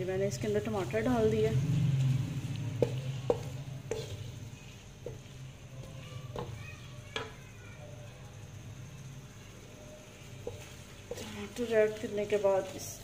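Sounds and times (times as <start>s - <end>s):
vegetables sizzling in a pan: 0.0s - 13.0s
spatula knocking against pan: 2.8s - 4.2s, 10.4s - 11.2s.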